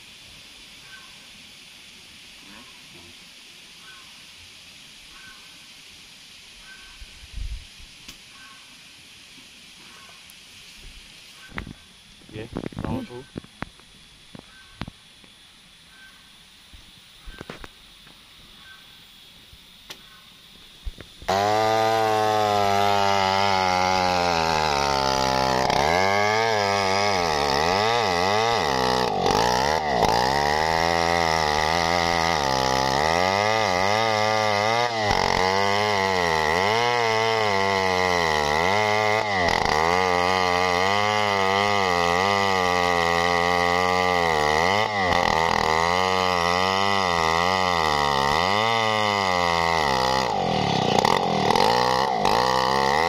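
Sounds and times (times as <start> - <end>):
chainsaw cutting log: 20.9 - 53.0.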